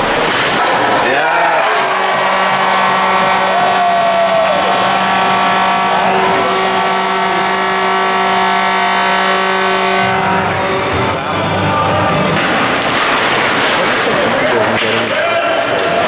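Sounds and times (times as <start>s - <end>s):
goal horn blast: 1.4s - 11.2s.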